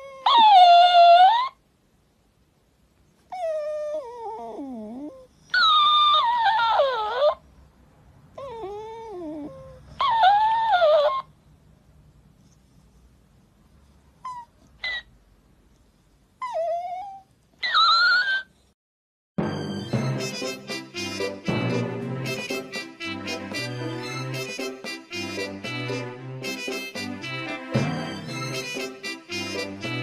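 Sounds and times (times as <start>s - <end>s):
dog whining: 0.0s - 1.6s, 3.3s - 7.4s, 8.4s - 11.3s, 14.2s - 15.1s, 16.4s - 18.7s
dog yelps: 0.0s - 1.6s, 3.3s - 7.4s, 8.4s - 11.3s, 14.2s - 15.1s, 16.4s - 18.6s.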